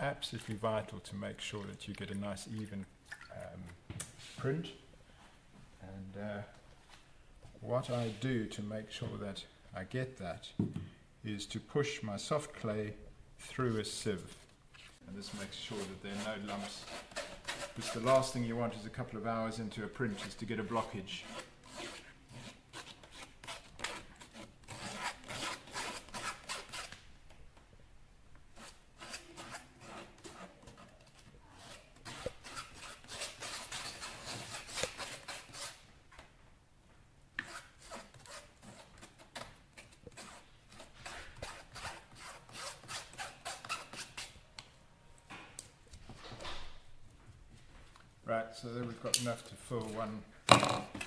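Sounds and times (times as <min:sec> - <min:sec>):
metal spatula rasping clay through sieve: 0:14.1 - 0:18.5, 0:20.0 - 0:27.0, 0:28.5 - 0:35.8.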